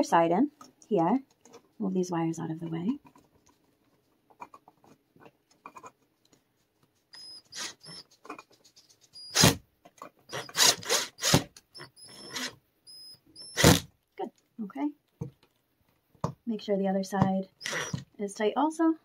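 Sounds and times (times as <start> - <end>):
cordless drill driving a screw: 9.2 - 9.6, 10.3 - 13.9, 17.6 - 18.0.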